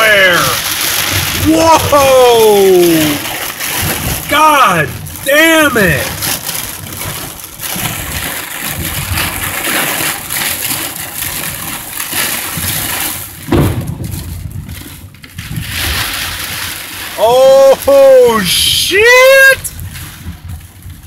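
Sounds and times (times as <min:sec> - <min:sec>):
heavy rain pelting a car: 0:00.0 - 0:21.0
loud low thump: 0:13.4 - 0:14.6.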